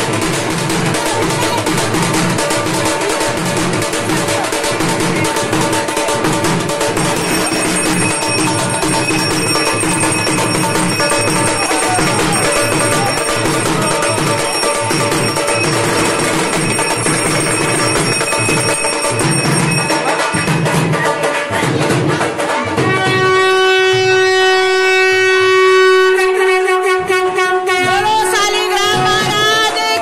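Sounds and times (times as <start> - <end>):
procession band music: 4.5 - 21.6
voices shouting: 7.0 - 20.4.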